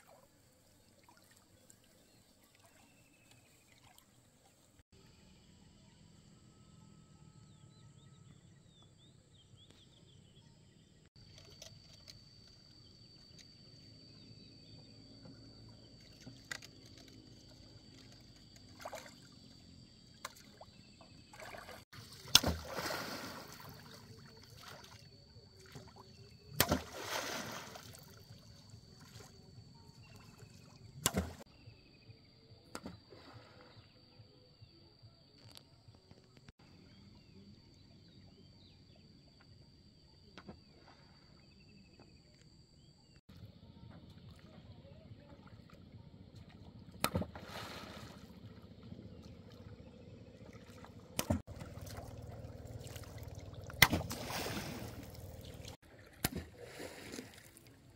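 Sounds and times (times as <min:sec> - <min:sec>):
pole slapping water: 0:17.9 - 0:19.3, 0:21.3 - 0:28.4, 0:30.1 - 0:31.4, 0:46.4 - 0:57.7
splashing: 0:18.0 - 0:19.3, 0:20.2 - 0:29.4, 0:30.1 - 0:31.4, 0:46.4 - 0:57.9.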